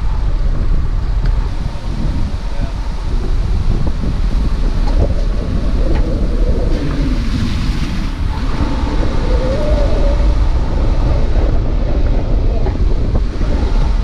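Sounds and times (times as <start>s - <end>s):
tyres on dirt track: 0.0s - 14.0s
wind buffeting microphone: 0.0s - 14.0s.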